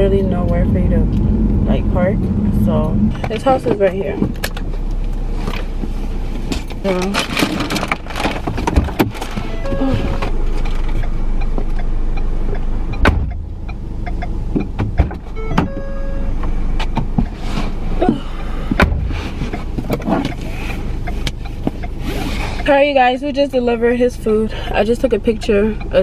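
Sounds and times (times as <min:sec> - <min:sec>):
low rumble: 0:00.0 - 0:26.0
car door opening and shutting: 0:03.1 - 0:11.9, 0:12.5 - 0:22.8
short beeps: 0:09.5 - 0:10.3, 0:11.0 - 0:14.7, 0:15.3 - 0:16.4
sharp knocks: 0:13.0 - 0:13.5.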